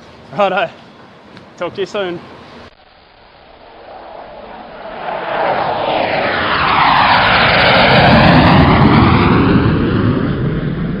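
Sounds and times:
propeller aircraft flying past: 3.5s - 11.0s.

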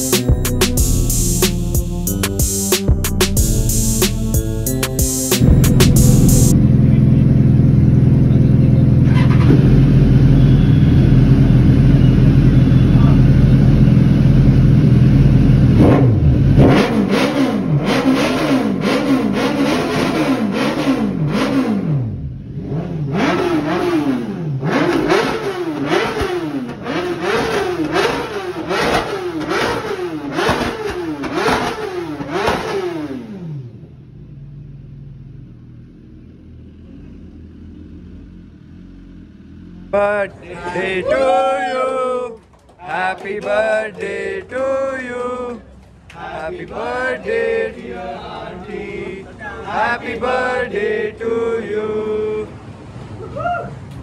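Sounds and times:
loud low engine drone: 0.0s - 24.7s
motorcycle engine revving: 5.4s - 40.3s.

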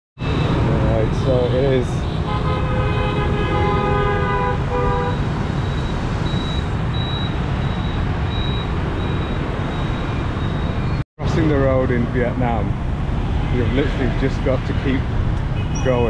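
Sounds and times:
street traffic rumble: 0.2s - 16.0s
vehicle horn sounding: 2.0s - 5.3s.

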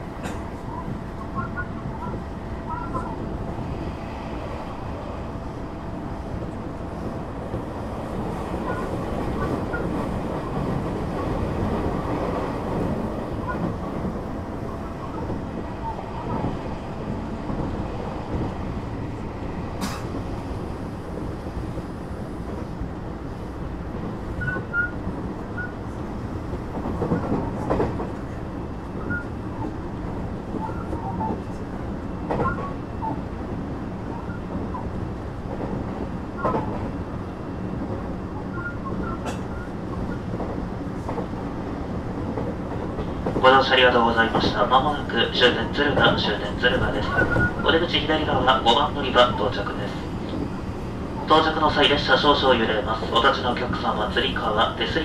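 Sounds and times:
train wheels rumbling on rail: 0.0s - 55.0s
brief high squeaks: 24.4s - 25.0s, 38.5s - 40.2s.

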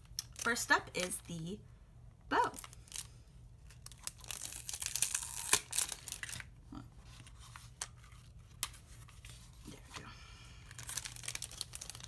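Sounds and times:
plastic packaging crinkling: 2.4s - 6.6s, 10.6s - 12.0s.

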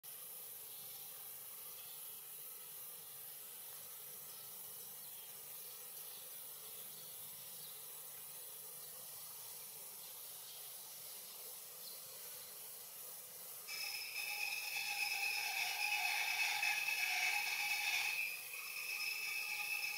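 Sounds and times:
faint steady hiss: 0.0s - 19.9s.

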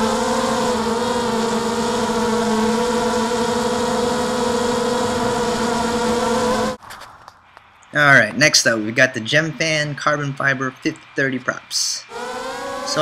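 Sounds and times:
quadcopter motors whining: 0.0s - 6.8s, 10.1s - 13.0s.

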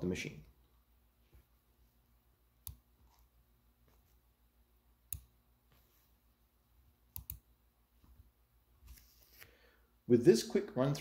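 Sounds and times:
computer mouse clicking: 5.1s - 5.3s, 7.1s - 7.4s.

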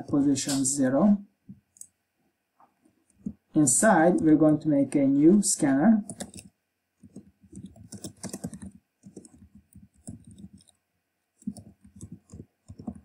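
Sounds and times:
typing on computer keyboard: 6.0s - 10.8s, 11.4s - 13.0s.

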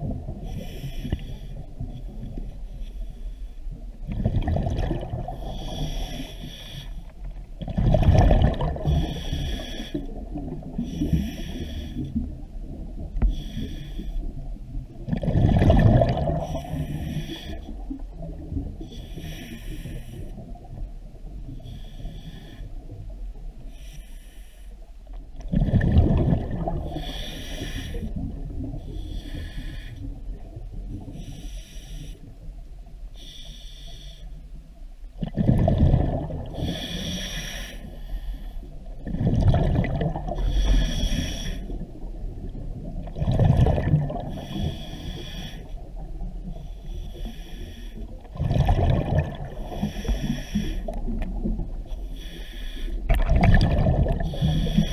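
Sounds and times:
exhaled bubbles gushing: 4.0s - 5.7s, 7.6s - 9.3s, 15.0s - 16.6s, 25.4s - 27.0s, 35.2s - 36.7s, 39.0s - 40.7s, 41.8s - 44.6s, 48.2s - 50.2s, 53.1s - 54.9s.

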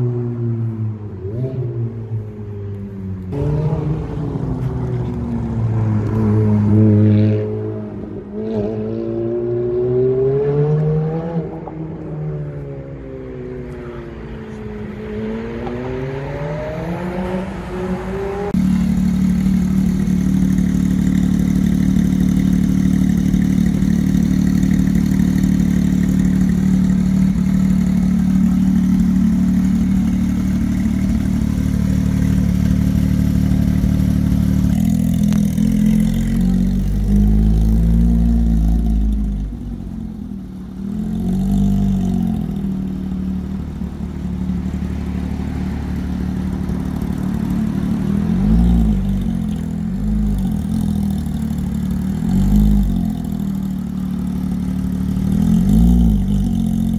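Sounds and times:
sports car accelerating: 0.0s - 56.9s
sports car engine idling: 18.6s - 56.9s.

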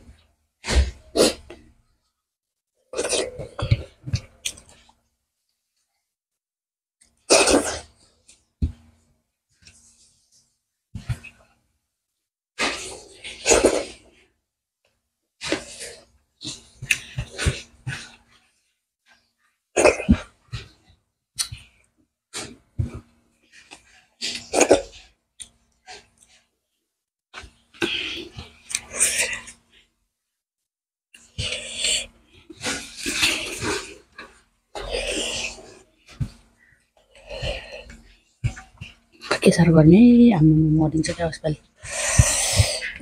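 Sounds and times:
person chewing: 3.0s - 5.0s, 27.7s - 29.6s, 31.2s - 35.8s, 41.7s - 43.0s.

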